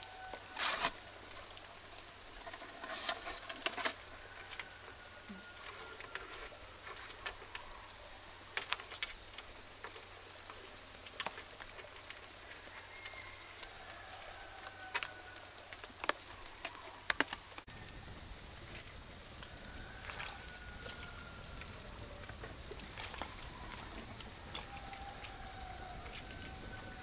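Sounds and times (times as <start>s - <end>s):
faint thin whistling tones: 0.0s - 8.3s, 19.4s - 27.0s
campfire crackling and popping: 0.0s - 27.0s.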